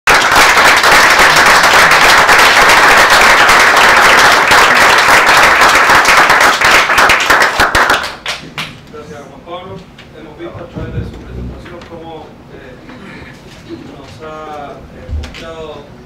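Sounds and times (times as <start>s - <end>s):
audience applauding: 0.1s - 8.7s.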